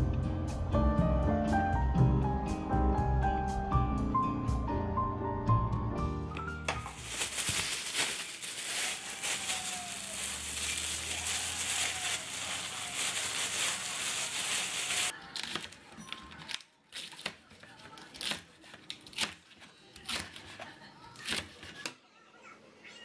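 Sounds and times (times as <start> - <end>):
plastic bag crinkling: 6.7 - 15.2.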